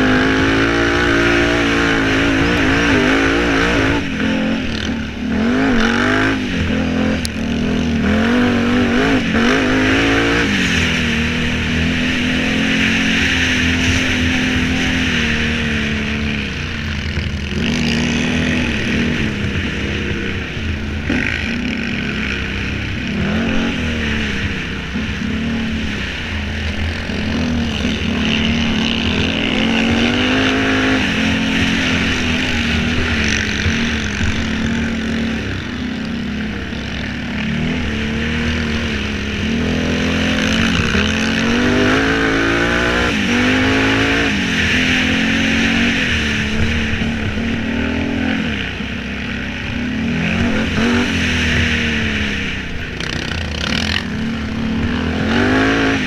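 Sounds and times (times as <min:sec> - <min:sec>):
quad engine revving: 0:00.0 - 0:56.0
steady rushing noise: 0:00.0 - 0:56.0.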